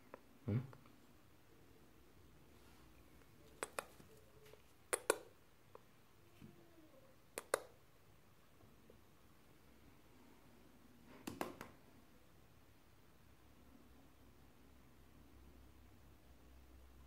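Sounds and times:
pairs of sharp clicks: 0:03.6 - 0:04.0, 0:04.9 - 0:05.8, 0:07.3 - 0:07.8.

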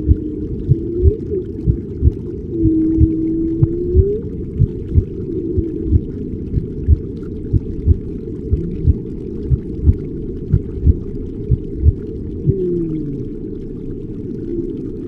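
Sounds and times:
soft low thumps: 0:00.0 - 0:12.7
dull underwater rumble: 0:00.0 - 0:15.0
faint gliding moaning calls: 0:12.4 - 0:13.6.

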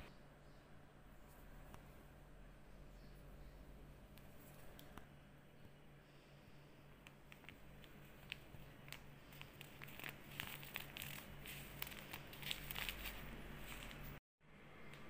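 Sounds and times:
paper sachet crinkling: 0:07.0 - 0:14.2.

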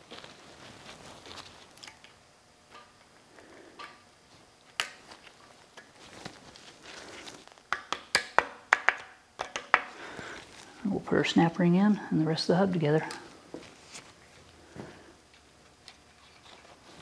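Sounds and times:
rag rustling: 0:00.0 - 0:01.9, 0:04.3 - 0:07.6, 0:12.9 - 0:15.1.

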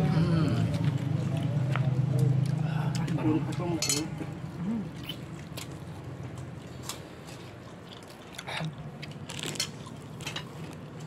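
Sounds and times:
meat being torn and chewed: 0:04.9 - 0:11.0
short crunchy clicks and rustles: 0:09.1 - 0:10.8.

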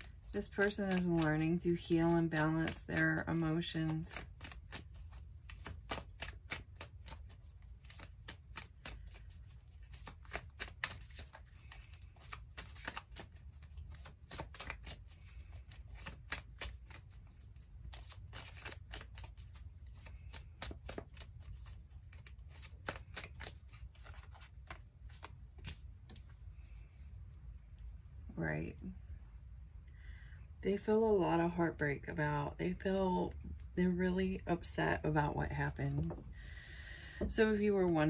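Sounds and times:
cards being shuffled: 0:00.0 - 0:26.3
low steady hum: 0:00.0 - 0:38.0.

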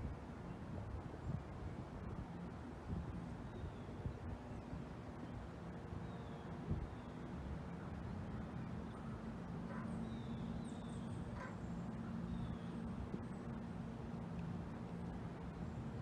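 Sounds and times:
steady low hum: 0:00.8 - 0:16.0
faint bird calls: 0:08.9 - 0:12.9.

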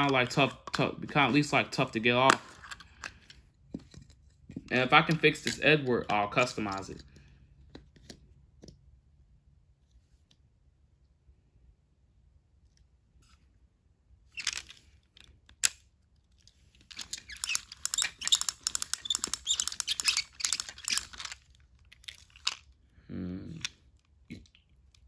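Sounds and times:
plastic toy clicking and scraping: 0:00.0 - 0:07.2, 0:14.4 - 0:22.8.

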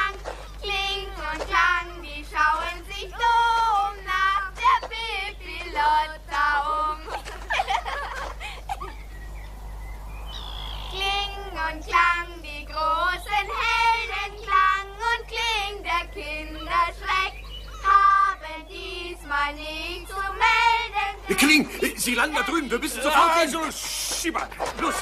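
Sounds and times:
child singing: 0:00.0 - 0:07.2, 0:10.9 - 0:23.7.

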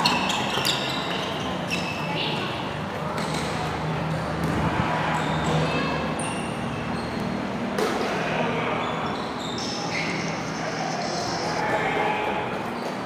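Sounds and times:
shoes squeaking on court floor: 0:00.0 - 0:02.4, 0:05.2 - 0:07.6, 0:08.7 - 0:11.6
murmur of voices: 0:00.9 - 0:13.0.

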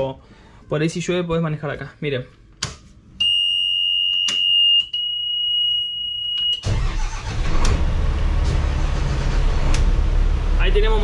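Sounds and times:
diesel engine starting and running: 0:06.6 - 0:11.0.

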